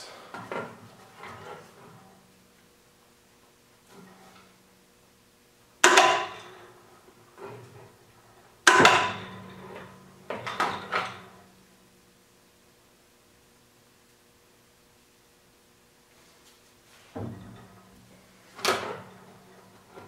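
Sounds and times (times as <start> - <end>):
loud metal clanks: 8.7 - 11.7.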